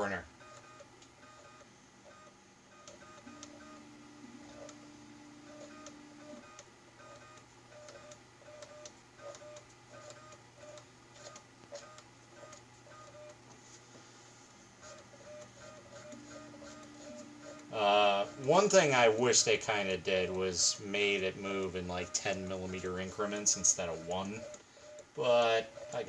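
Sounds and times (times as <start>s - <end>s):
stepper motor whine and click: 0.4s - 13.4s, 14.9s - 18.9s.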